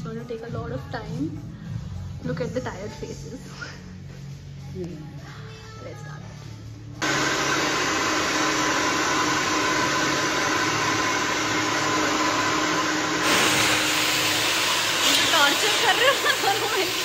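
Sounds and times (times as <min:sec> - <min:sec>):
hair dryers blowing: 0:07.0 - 0:17.0.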